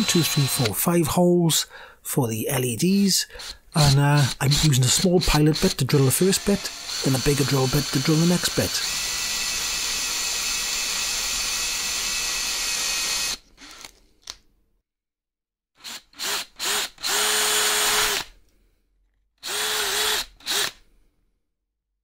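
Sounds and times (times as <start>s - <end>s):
electric drill boring plastic: 0.0s - 0.8s, 3.4s - 14.0s, 15.8s - 18.4s, 19.4s - 20.8s.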